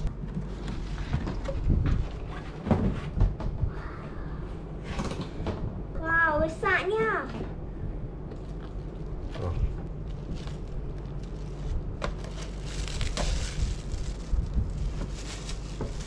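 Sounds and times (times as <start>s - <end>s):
plastic wrap crinkling: 8.3s - 16.0s.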